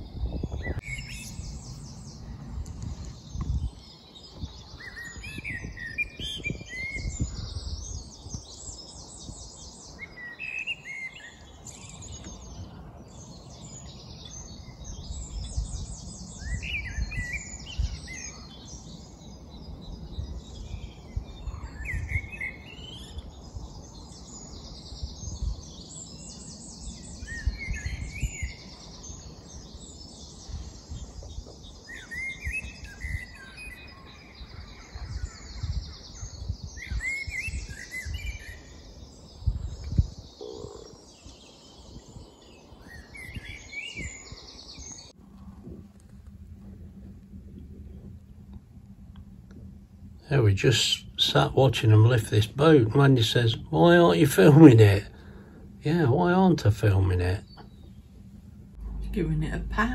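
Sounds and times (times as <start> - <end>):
low gusty rumble: 0.0 - 10.0, 11.3 - 59.9
birds twittering and trilling: 0.0 - 59.9
songbirds singing: 0.0 - 59.9.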